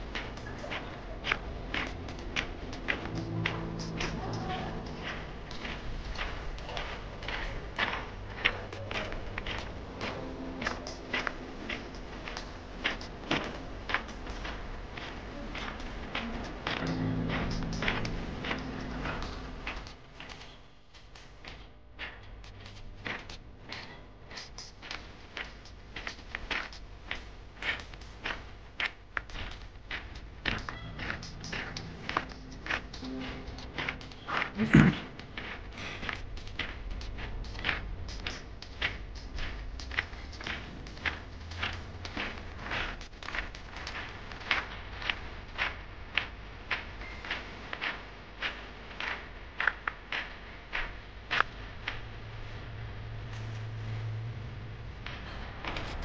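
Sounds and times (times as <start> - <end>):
scuffing footsteps: 0.0 - 20.0, 25.6 - 48.1
low steady hum: 0.0 - 20.9, 28.2 - 56.0.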